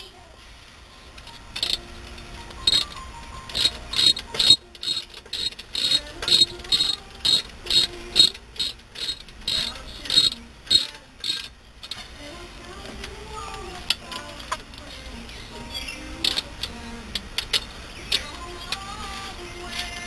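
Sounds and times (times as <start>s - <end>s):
ratchet wrench clicking: 1.6s - 1.8s, 2.6s - 12.0s, 13.8s - 20.0s.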